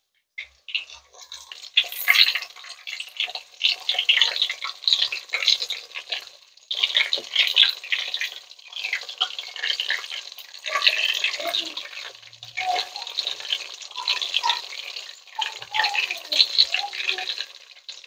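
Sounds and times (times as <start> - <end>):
chicken deep-frying in oil: 0.0 - 18.0.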